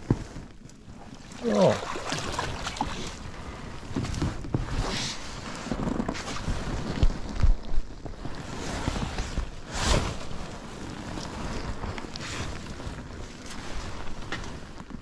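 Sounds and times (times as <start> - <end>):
water splashing and dripping: 1.0 - 3.9.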